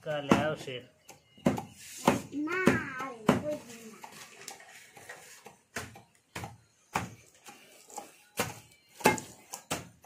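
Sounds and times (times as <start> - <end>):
stick thudding on plastic sack: 8.3 - 10.0.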